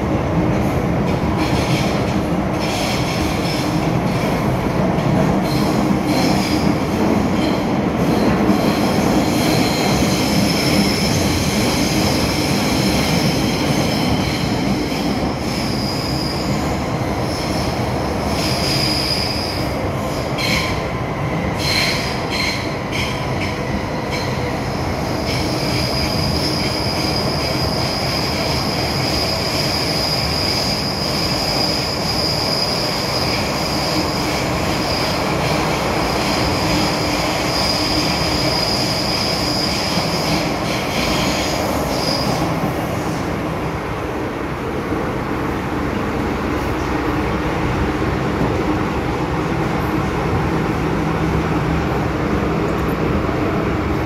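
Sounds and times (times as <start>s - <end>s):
train rumble: 0.0s - 54.0s
high-pitched wheel squeal: 13.8s - 17.7s, 25.3s - 34.2s.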